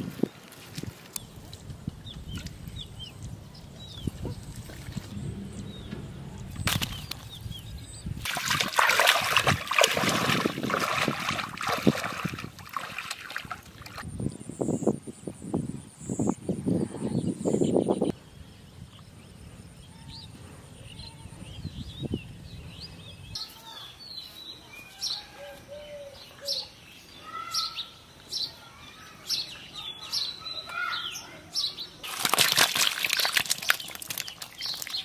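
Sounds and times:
birds chirping: 1.1s - 32.0s, 33.5s - 35.0s
fish splashing in shallow water: 6.6s - 7.4s, 8.2s - 14.0s, 32.0s - 35.0s.

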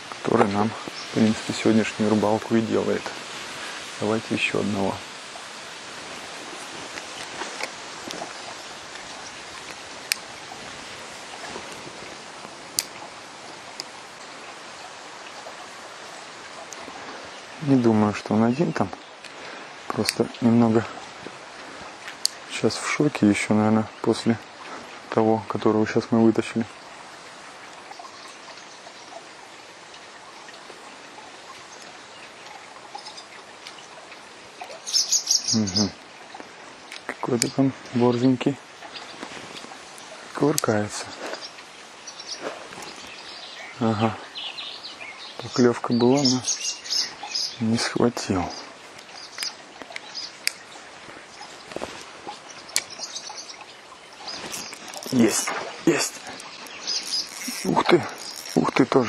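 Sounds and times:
outdoor hiss: 0.0s - 59.0s
faint ticks: 48.9s - 58.8s.

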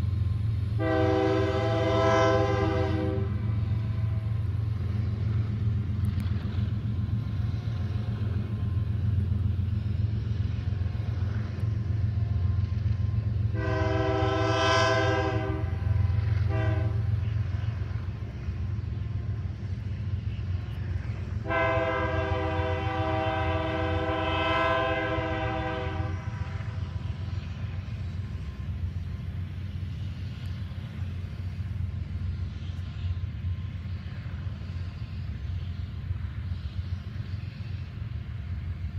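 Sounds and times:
freight train rumble: 0.0s - 38.9s
locomotive air horn: 0.7s - 3.6s, 13.5s - 17.5s, 21.4s - 26.8s.

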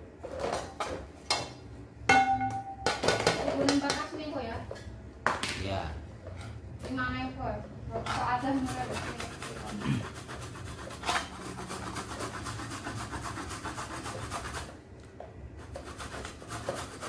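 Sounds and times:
coconut scraping on metal grater: 8.0s - 14.8s, 15.6s - 17.0s.

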